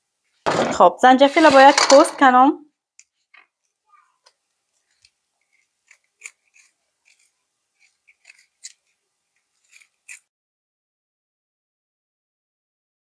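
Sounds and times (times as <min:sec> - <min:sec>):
knife peeling ginger: 0:04.8 - 0:10.3.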